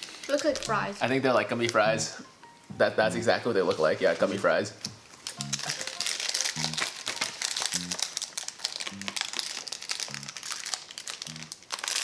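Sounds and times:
plastic wrapper crinkling: 0:00.0 - 0:01.0, 0:03.5 - 0:12.0.

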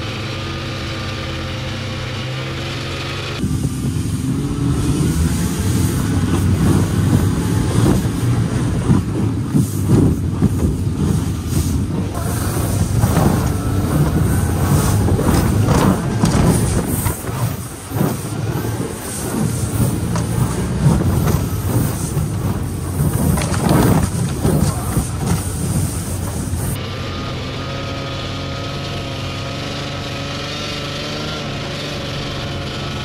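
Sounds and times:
snowmobile engine and track rumble: 0:00.0 - 0:33.0
knocks and rattles: 0:06.0 - 0:26.8.

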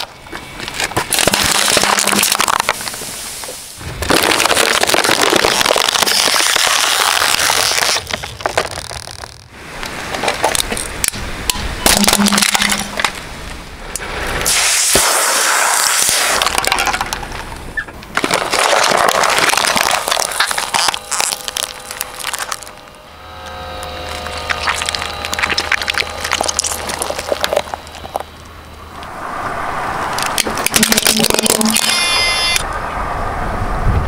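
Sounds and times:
tyre crushing hard plastic: 0:00.0 - 0:03.1, 0:04.0 - 0:09.5, 0:15.8 - 0:22.8, 0:24.2 - 0:28.3, 0:30.4 - 0:31.9.

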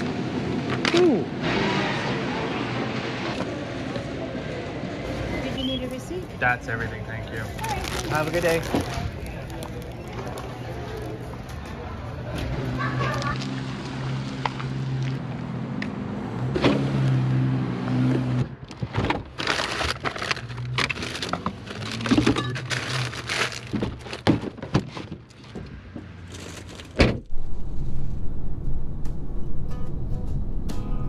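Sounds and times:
plastic bag rustling: 0:07.5 - 0:11.2, 0:19.3 - 0:25.5, 0:26.2 - 0:27.0
low hum: 0:27.2 - 0:31.0.

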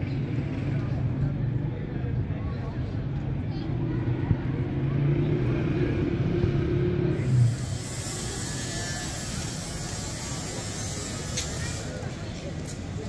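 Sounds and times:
city noise hiss: 0:06.0 - 0:13.0.

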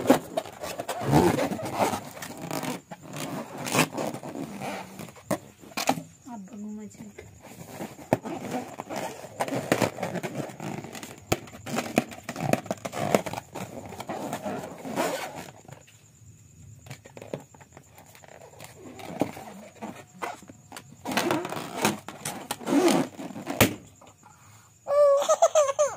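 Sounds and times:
balloon rubbing and squeaking: 0:00.0 - 0:06.0, 0:07.5 - 0:15.8, 0:17.1 - 0:24.1
taps and knocks on balloon: 0:23.4 - 0:24.1.

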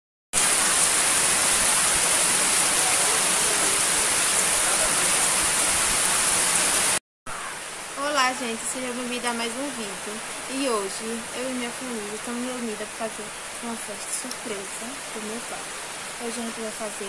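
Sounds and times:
heavy rain on leaves: 0:00.4 - 0:17.0.

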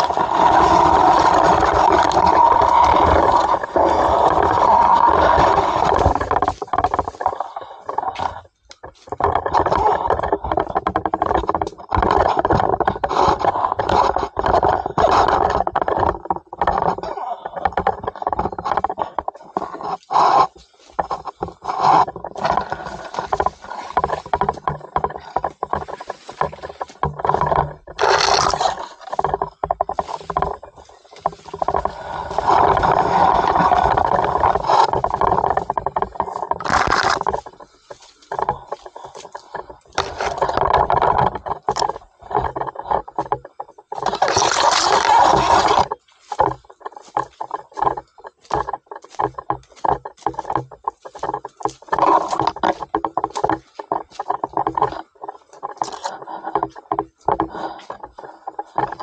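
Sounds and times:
pole handling noise: 0:00.0 - 0:59.0
leaves and branches scraping: 0:18.7 - 0:58.8.

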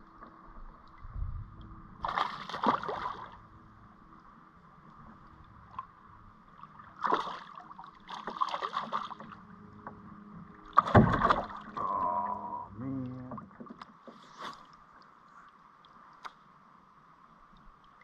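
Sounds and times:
fish splashing in water: 0:02.0 - 0:03.4, 0:07.0 - 0:09.4, 0:10.8 - 0:12.0
person vocal sound: 0:11.8 - 0:13.4.

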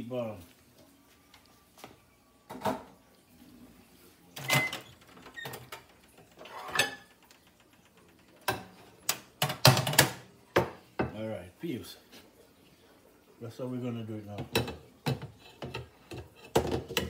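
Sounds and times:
metal pots clanking: 0:06.4 - 0:07.2, 0:14.4 - 0:17.0.

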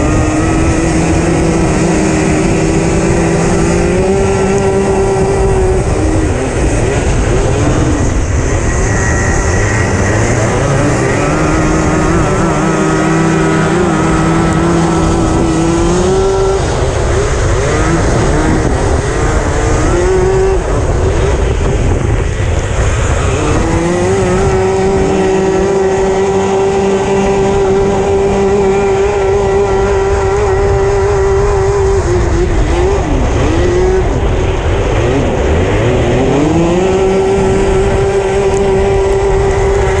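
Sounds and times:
kart engine at high revs: 0:00.0 - 0:40.0.

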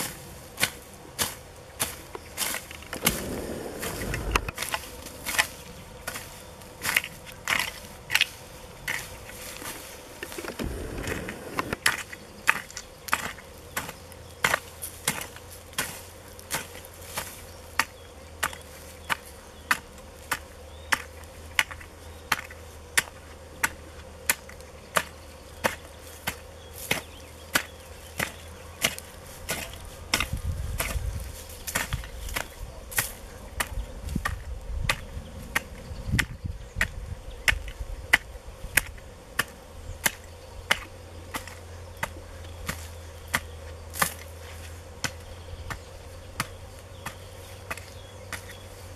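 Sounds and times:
hoe chopping into soil: 0:00.0 - 0:48.8
low rumble: 0:03.0 - 0:04.7.

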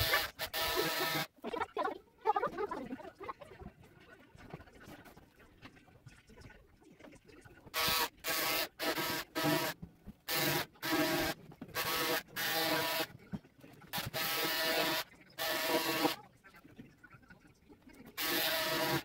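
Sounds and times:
handheld tool buzzing bursts: 0:00.0 - 0:01.3, 0:07.8 - 0:13.1, 0:14.0 - 0:16.2, 0:18.2 - 0:19.0.

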